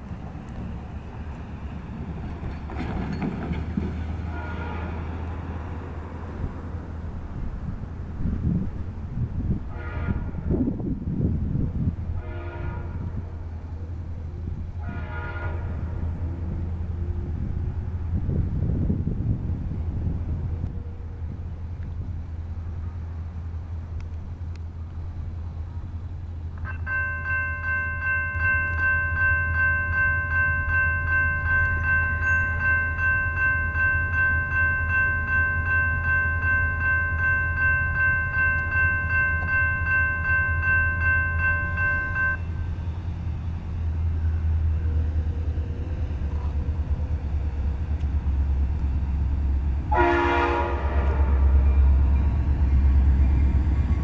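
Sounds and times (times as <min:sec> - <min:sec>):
freight train rumble: 0:00.0 - 0:54.0
locomotive air horn chord: 0:04.2 - 0:05.1, 0:09.7 - 0:10.5, 0:12.1 - 0:13.4, 0:14.8 - 0:16.3, 0:49.9 - 0:52.0.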